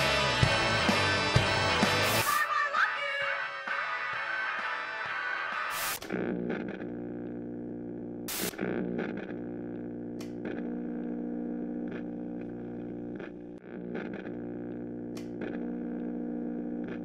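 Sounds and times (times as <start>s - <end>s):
distorted electronic hum: 5.6s - 17.0s
clicks and crackles: 8.3s - 11.1s, 11.9s - 16.0s.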